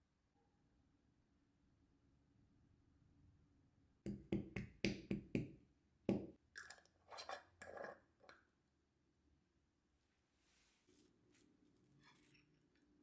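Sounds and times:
lid scraping on jar threads: 0:06.6 - 0:08.4.

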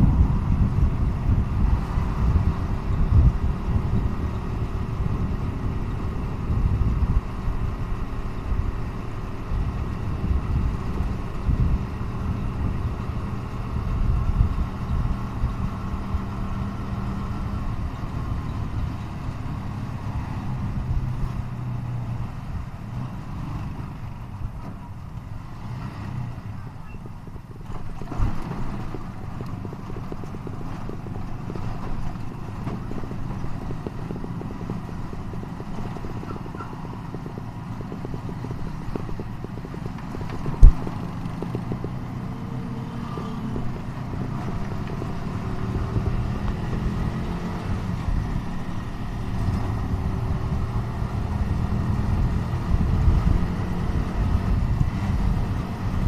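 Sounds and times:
low rumble on microphone: 0:00.0 - 0:25.1, 0:26.2 - 0:56.0
motorcycle engine running: 0:00.0 - 0:25.4, 0:26.3 - 0:56.0.

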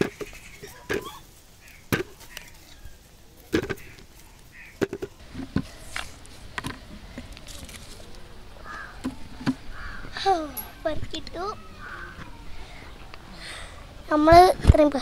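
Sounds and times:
roots knocking into plastic bucket: 0:03.5 - 0:04.0.

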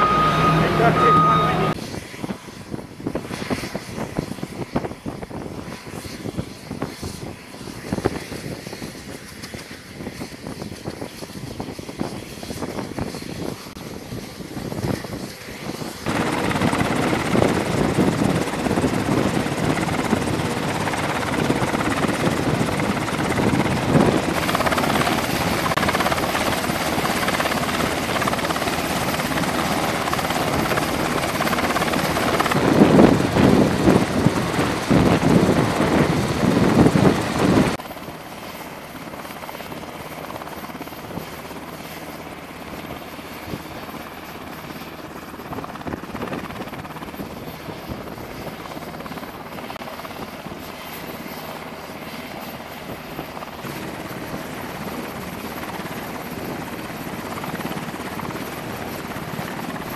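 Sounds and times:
machinery roar: 0:00.0 - 0:01.8.

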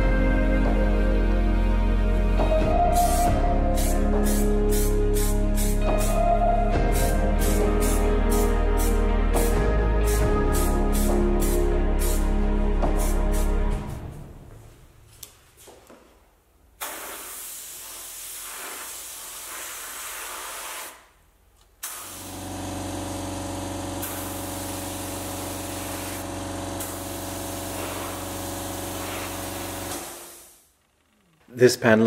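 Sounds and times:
spray hissing: 0:03.0 - 0:06.2, 0:10.1 - 0:13.7, 0:16.8 - 0:21.1, 0:21.8 - 0:22.6, 0:24.0 - 0:30.7.

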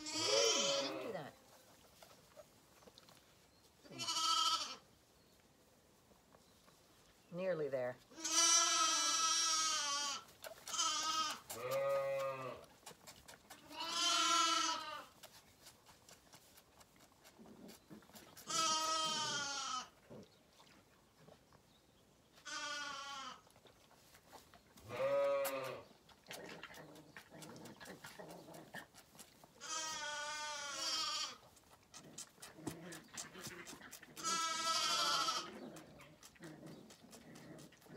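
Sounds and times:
lambs bleating: 0:00.0 - 0:01.2, 0:03.9 - 0:04.8, 0:08.1 - 0:12.7, 0:13.6 - 0:15.1, 0:18.4 - 0:20.0, 0:22.4 - 0:23.4, 0:24.9 - 0:25.8, 0:29.6 - 0:31.4, 0:34.2 - 0:35.6.

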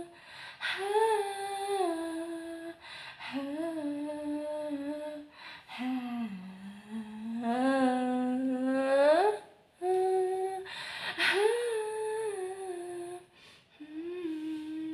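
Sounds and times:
woman singing wordlessly: 0:00.0 - 0:14.9.

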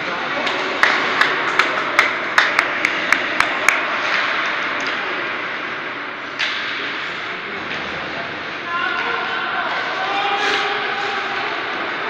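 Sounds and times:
arena noise: 0:07.2 - 0:12.0.

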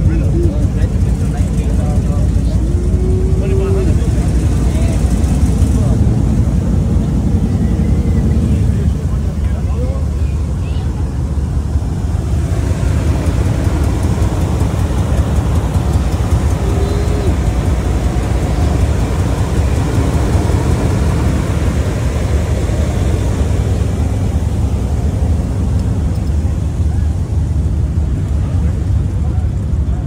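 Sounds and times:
truck engines idling: 0:00.0 - 0:30.0.

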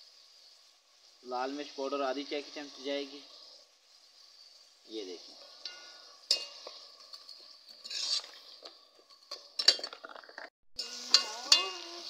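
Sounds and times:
vegetables sizzling in fat: 0:00.0 - 0:12.0
ladle scraping metal pot: 0:05.6 - 0:11.9.

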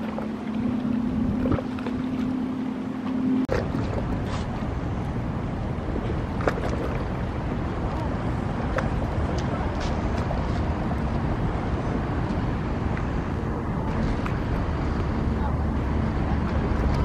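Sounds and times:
wind on microphone: 0:00.0 - 0:02.4
boat engines rumbling: 0:00.0 - 0:17.0.

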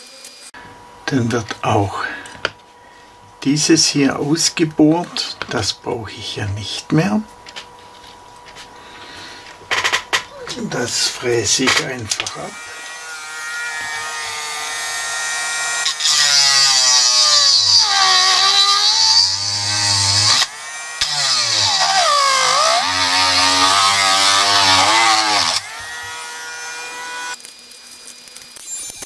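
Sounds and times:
rotary tool grinding metal: 0:09.7 - 0:29.0.

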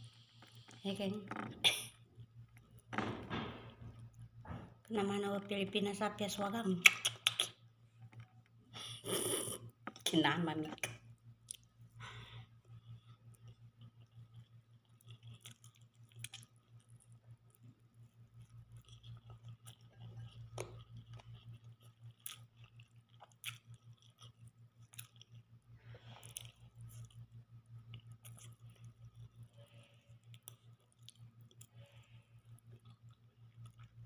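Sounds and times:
steady low hum: 0:00.0 - 0:34.0
person chewing: 0:11.4 - 0:34.0.

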